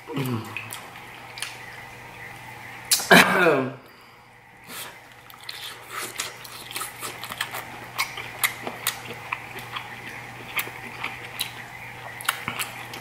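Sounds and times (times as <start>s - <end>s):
low steady hum: 0.0s - 13.0s
wet chewing and lip smacking: 0.4s - 1.7s, 4.6s - 13.0s.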